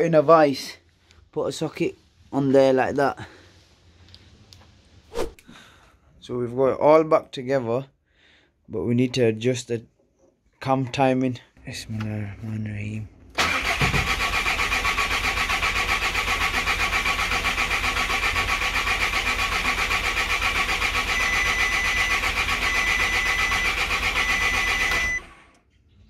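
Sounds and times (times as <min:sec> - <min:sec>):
engine cranking on starter: 0:13.4 - 0:25.5
electronic beep: 0:21.2 - 0:25.2.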